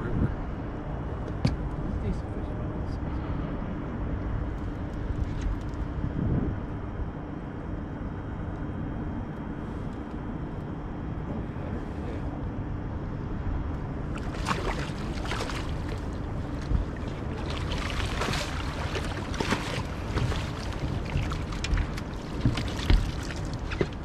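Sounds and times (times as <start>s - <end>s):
low rumble: 0.0s - 24.0s
fish splashing at water surface: 14.1s - 24.0s.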